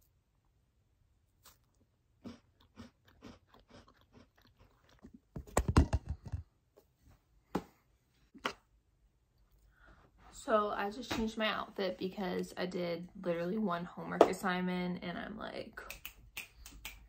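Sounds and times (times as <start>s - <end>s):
cookie crunching: 1.3s - 6.3s.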